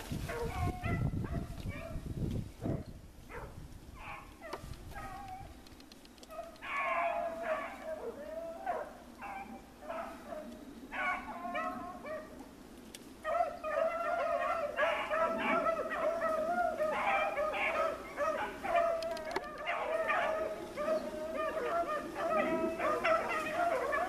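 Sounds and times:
beagles baying: 0:06.2 - 0:12.6, 0:13.2 - 0:24.0.

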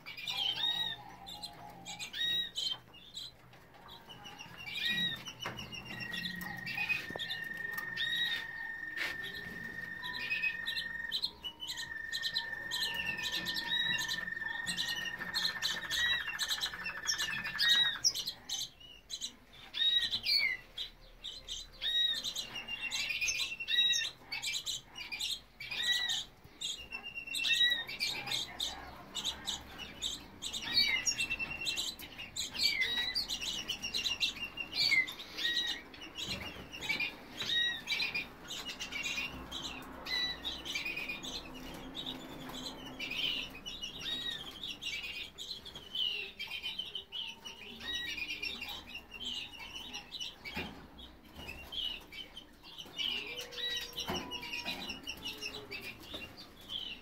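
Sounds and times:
canaries chirping and calling: 0:00.0 - 0:57.0.

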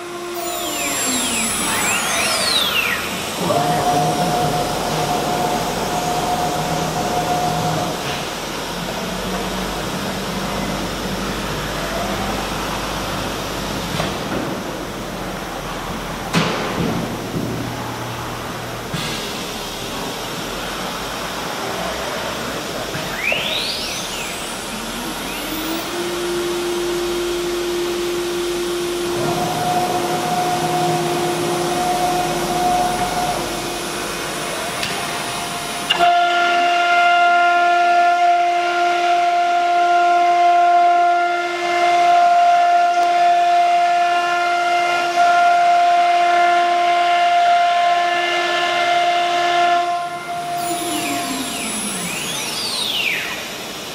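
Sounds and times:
router spindle whining: 0:00.0 - 0:10.9, 0:22.6 - 0:37.1.

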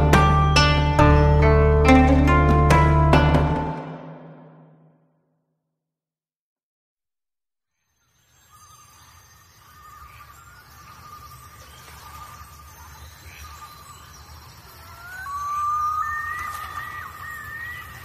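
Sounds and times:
flute-like line with sliding notes: 0:14.8 - 0:18.0.

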